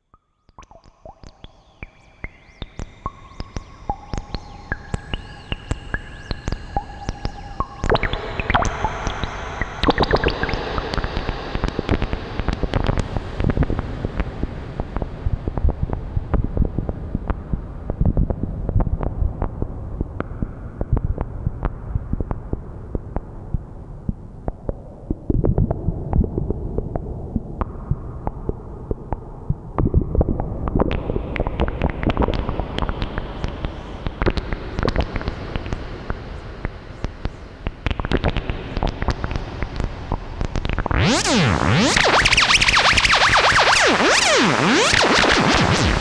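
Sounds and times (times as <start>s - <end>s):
synth crackle of clicks and pops: 0.0s - 46.0s
synthesizer clicks and blips: 0.5s - 13.6s, 37.9s - 46.0s
synthesizer pitch glides: 3.0s - 11.3s, 40.8s - 46.0s.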